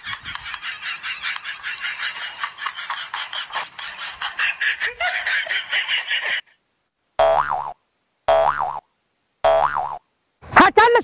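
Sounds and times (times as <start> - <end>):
cackling laughter: 0.0 - 6.6.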